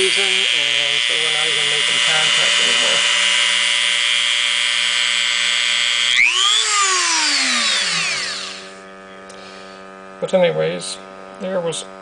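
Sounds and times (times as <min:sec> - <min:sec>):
rotary tool whining: 0:00.0 - 0:10.6.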